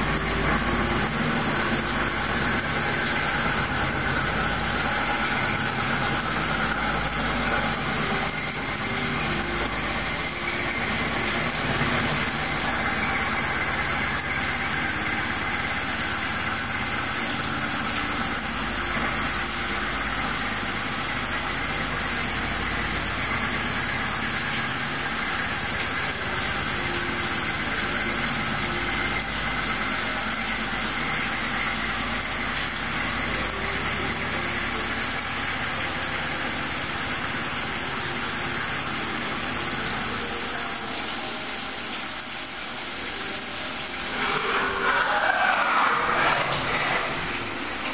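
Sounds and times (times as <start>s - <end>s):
milling machine cutting metal: 6.4s - 15.2s, 40.2s - 47.9s.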